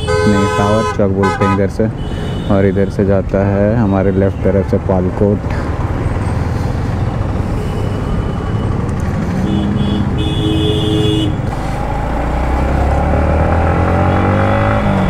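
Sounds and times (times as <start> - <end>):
vehicle horn tooting: 0.0 - 2.9, 9.4 - 11.4
wind and road rumble: 0.0 - 15.0.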